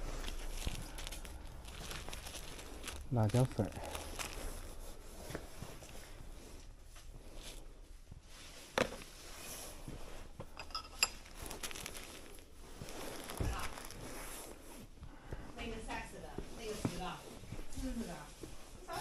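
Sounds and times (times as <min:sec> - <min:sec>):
glass jars clinking: 0:10.6 - 0:11.4.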